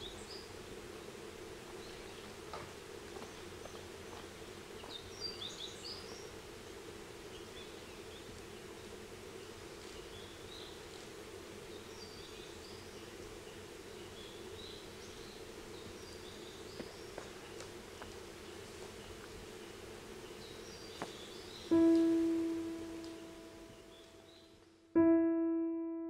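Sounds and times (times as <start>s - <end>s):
birds chirping: 0.0s - 24.6s
low hum: 21.7s - 24.3s.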